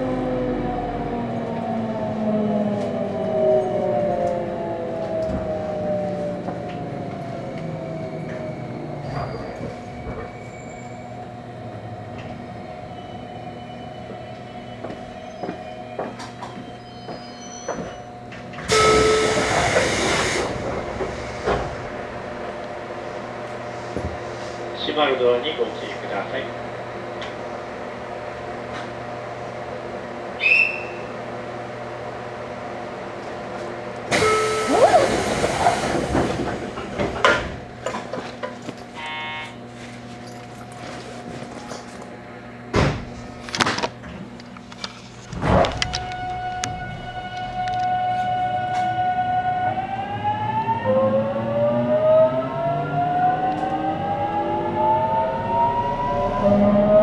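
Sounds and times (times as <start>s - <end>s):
train equipment hum: 0.0s - 51.4s
short high beep: 39.0s - 39.6s
rising whine: 45.8s - 57.0s.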